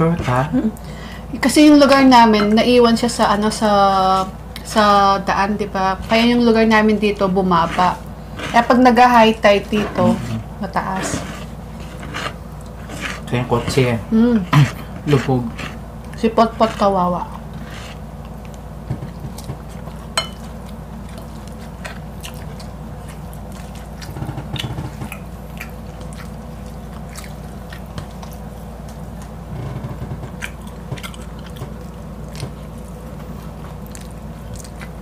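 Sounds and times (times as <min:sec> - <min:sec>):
biting and chewing: 0:07.6 - 0:13.9, 0:14.5 - 0:35.0.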